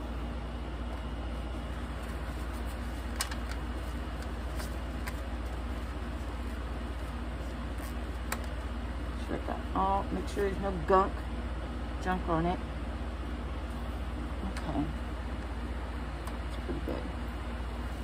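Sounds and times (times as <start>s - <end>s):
electric fan humming: 0.0s - 18.0s
paper towel rustling: 1.3s - 8.7s.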